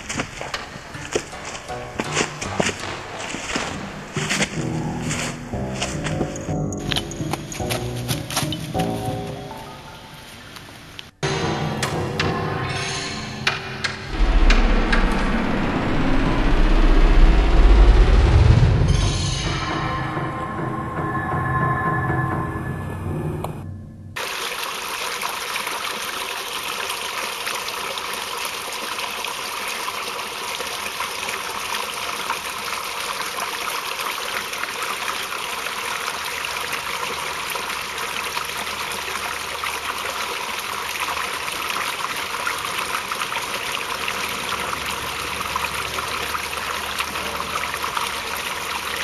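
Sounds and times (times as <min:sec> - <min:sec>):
stream flowing over rocks: 0:24.2 - 0:49.0.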